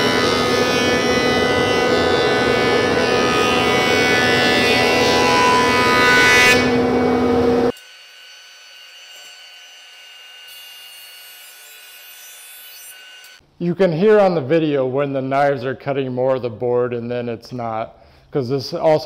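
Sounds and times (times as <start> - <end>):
jointer motor whine: 0.0 - 11.6.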